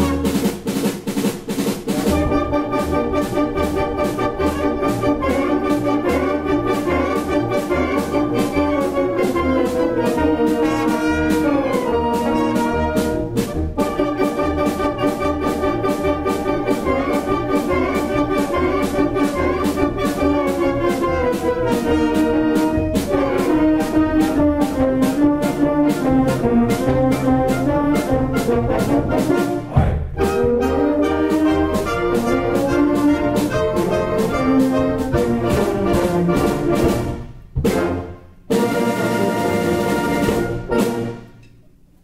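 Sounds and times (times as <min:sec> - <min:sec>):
orchestra with brass playing: 0:00.0 - 0:41.5
short percussive hit: 0:29.7 - 0:30.3.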